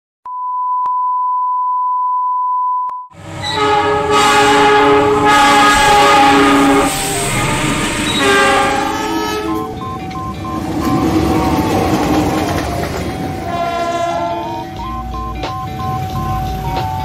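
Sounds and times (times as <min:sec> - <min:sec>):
locomotive horn: 0:03.2 - 0:10.0, 0:13.3 - 0:14.9
test tone: 0:06.9 - 0:12.1, 0:12.8 - 0:17.0.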